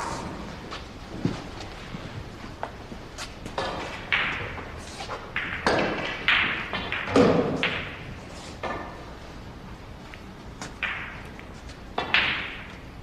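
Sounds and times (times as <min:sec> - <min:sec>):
cue tips striking balls: 0:02.5 - 0:09.2, 0:10.1 - 0:13.0
snooker balls clacking: 0:02.6 - 0:09.2, 0:10.1 - 0:13.0.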